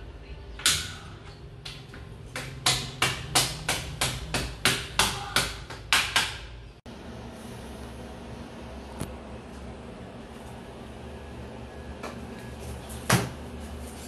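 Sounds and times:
hammer knocking nails: 1.6s - 6.5s.

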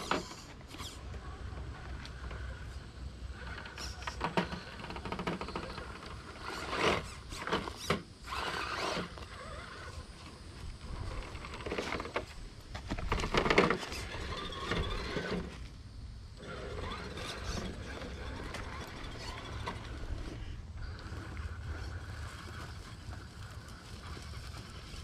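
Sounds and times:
electric motor whining: 3.3s - 12.3s, 13.1s - 15.6s, 16.4s - 25.0s
crunching and rustling over dirt: 16.4s - 25.0s.

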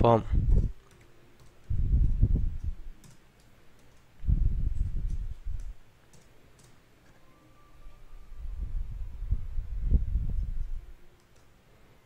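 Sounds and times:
typing on computer keyboard: 0.8s - 1.7s, 2.6s - 4.1s, 5.0s - 7.2s, 11.1s - 11.6s.

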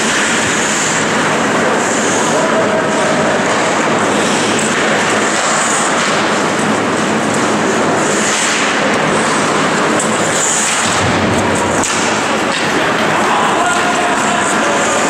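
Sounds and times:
ice hockey rink din: 0.0s - 15.0s.

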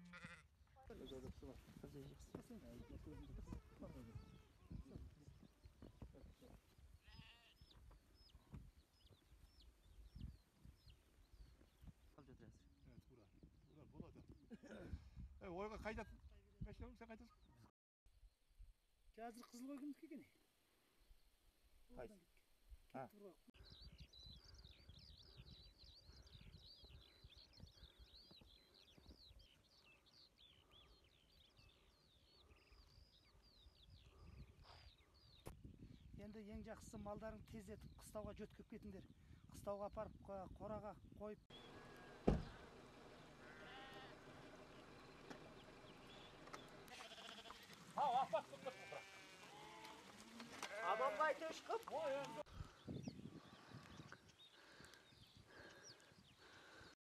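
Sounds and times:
sheep bleating: 0.0s - 0.5s, 7.0s - 7.7s, 43.4s - 44.2s, 46.9s - 52.5s
small birds chirping: 0.2s - 15.0s, 22.9s - 57.0s.

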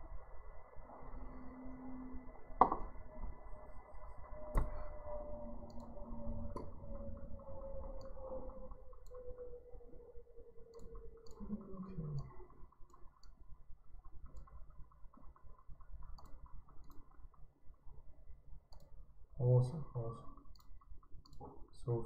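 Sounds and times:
low steady background hum: 0.0s - 22.0s
computer mouse clicking: 5.6s - 18.0s, 18.7s - 19.1s, 20.4s - 22.0s.

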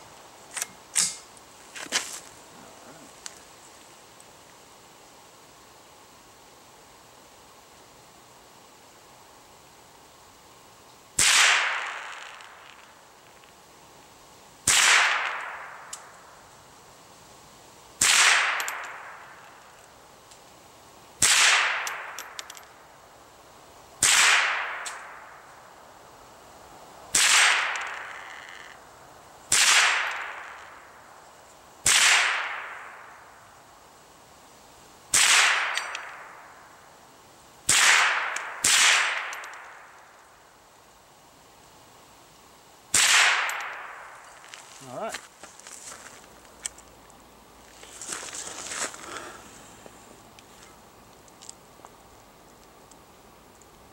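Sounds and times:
rifle shots: 11.2s - 12.6s, 14.6s - 15.9s, 18.0s - 19.2s, 21.2s - 22.4s, 24.0s - 25.2s, 27.1s - 28.1s, 29.5s - 30.6s, 31.8s - 33.0s, 35.1s - 36.4s, 37.7s - 39.8s, 42.9s - 44.2s.

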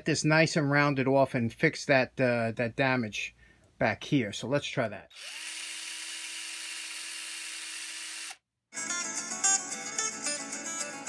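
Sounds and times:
power drill whining: 5.1s - 8.4s
guitar music: 8.7s - 11.0s.

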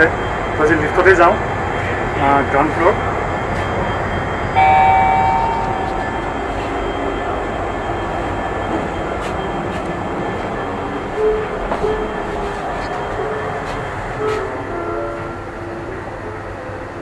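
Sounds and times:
railway station rumble: 0.0s - 17.0s
bright chime: 4.6s - 7.1s.

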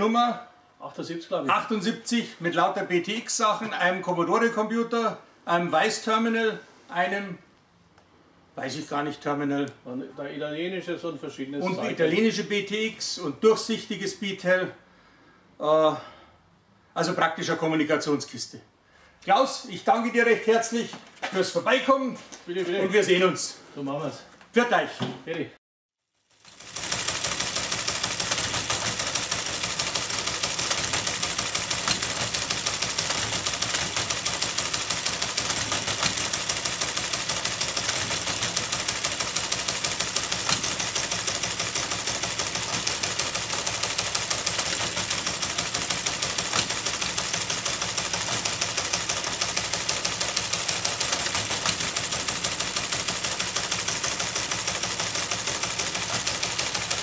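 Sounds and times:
typewriter clatter: 26.4s - 57.0s.

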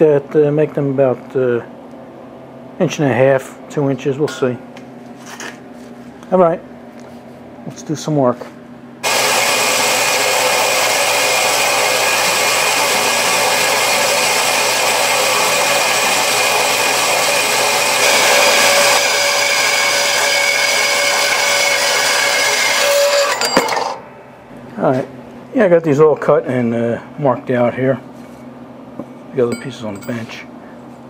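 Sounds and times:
band saw cutting steel: 9.0s - 24.0s
high tones: 29.4s - 30.5s.

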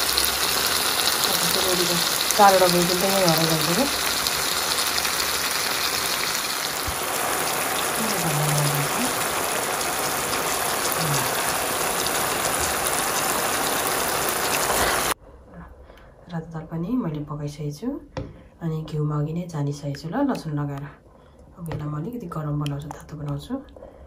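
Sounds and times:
curry sizzling in a pan: 0.0s - 15.2s.

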